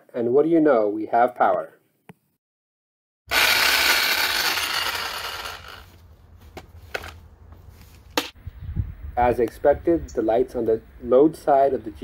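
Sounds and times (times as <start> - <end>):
reciprocating saw running: 3.3 - 6.0.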